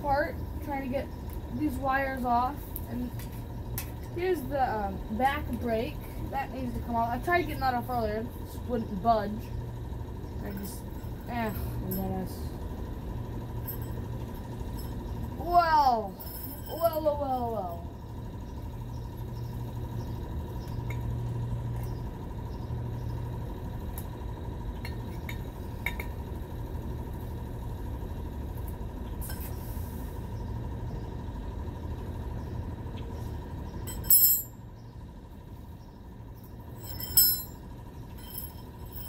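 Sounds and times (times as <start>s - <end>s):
steady low hum: 0.0s - 39.0s
sharp ringing metal clinks: 10.4s - 12.5s, 13.5s - 17.9s, 33.8s - 34.7s, 36.4s - 39.0s
metal tools clinking and tapping: 16.2s - 17.2s, 33.8s - 34.6s, 36.8s - 39.0s.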